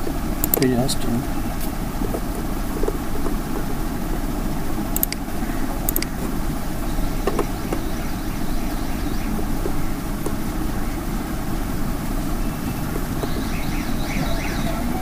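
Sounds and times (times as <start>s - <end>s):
low background rumble: 0.0s - 15.0s
computer mouse clicks: 0.4s - 0.8s, 5.0s - 5.3s, 5.9s - 6.2s.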